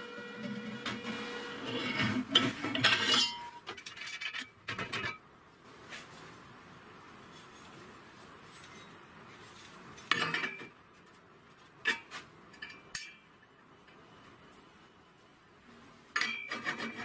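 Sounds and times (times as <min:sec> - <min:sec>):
steel parts clinking: 0:02.8 - 0:05.2.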